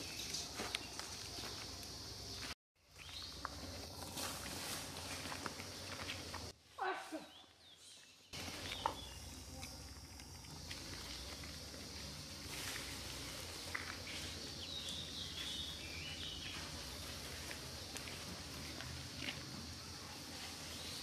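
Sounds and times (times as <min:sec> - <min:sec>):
steady high hiss: 0:08.2 - 0:21.0.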